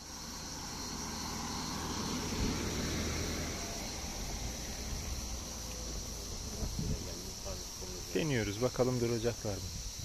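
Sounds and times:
high insect chorus: 0:00.0 - 0:10.0
car driving past: 0:00.2 - 0:07.8.

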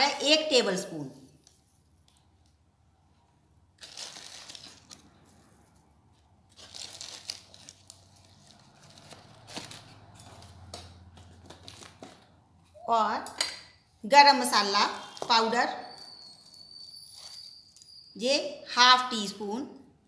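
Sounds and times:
dry leaves rustling from packet: 0:03.8 - 0:05.2, 0:06.5 - 0:10.5.

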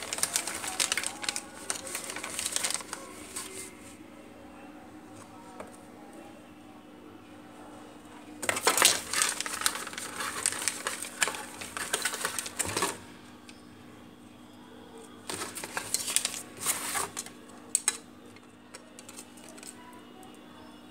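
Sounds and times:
plastic bag crinkling: 0:00.0 - 0:03.7, 0:08.4 - 0:13.1, 0:15.2 - 0:18.0, 0:18.7 - 0:19.9.

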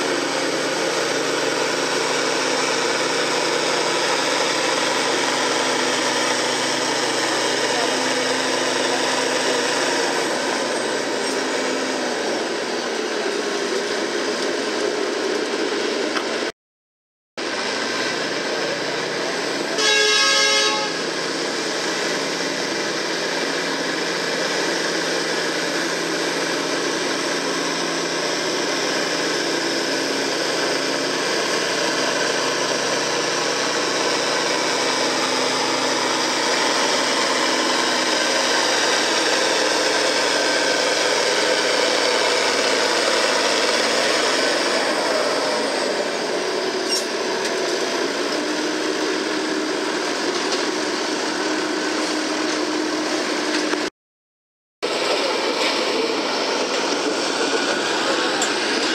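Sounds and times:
tractor diesel engine under load: 0:00.0 - 0:16.5, 0:17.4 - 0:53.9, 0:54.8 - 0:58.9
short horn blast: 0:19.8 - 0:21.2.

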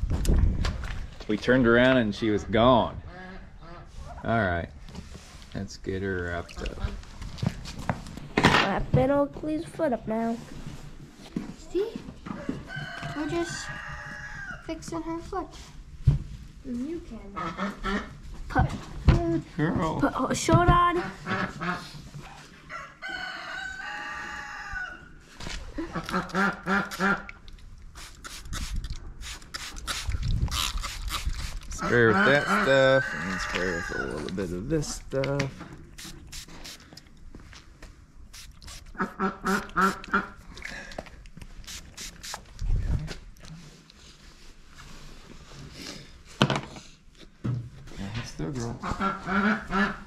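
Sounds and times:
rooster crowing: 0:12.3 - 0:14.7, 0:22.7 - 0:25.1, 0:32.0 - 0:34.3
duck quacking: 0:26.0 - 0:27.3, 0:38.9 - 0:40.4, 0:48.8 - 0:50.0.

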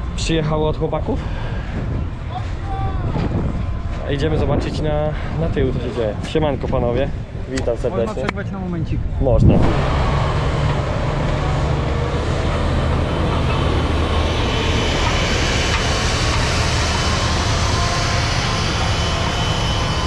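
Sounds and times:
diesel engine running: 0:09.5 - 0:20.0.

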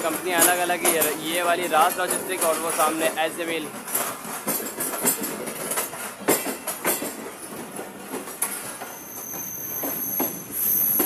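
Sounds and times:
train wheels clacking on track: 0:00.0 - 0:11.0
high wheel squeal: 0:08.5 - 0:11.0.

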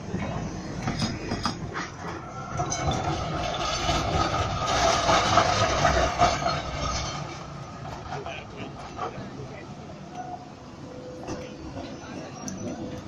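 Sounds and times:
tram wheels rumbling over rails: 0:00.0 - 0:13.0.

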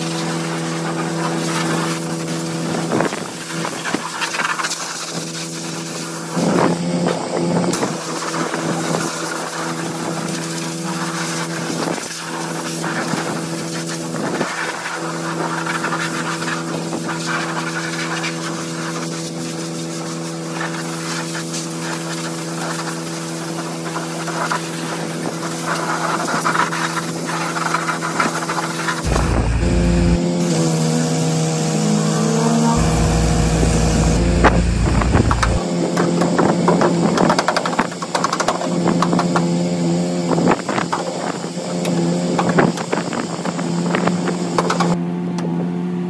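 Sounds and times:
engine drone: 0:00.0 - 0:46.0.

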